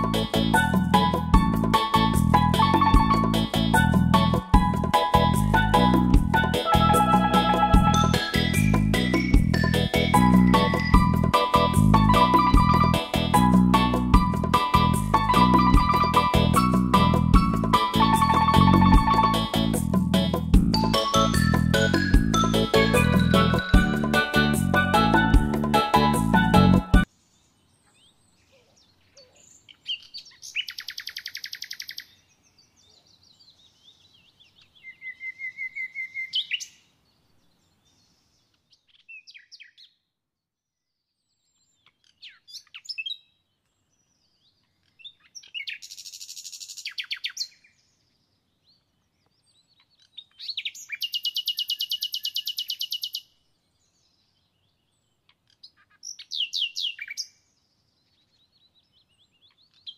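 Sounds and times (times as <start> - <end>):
songbird trilling: 27.8 - 32.3, 49.8 - 53.3.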